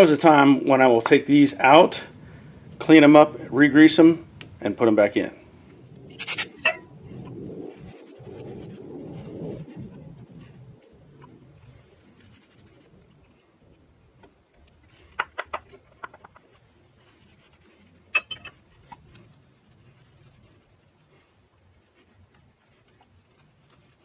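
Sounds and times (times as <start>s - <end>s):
rag rubbing metal pins: 6.1s - 6.8s.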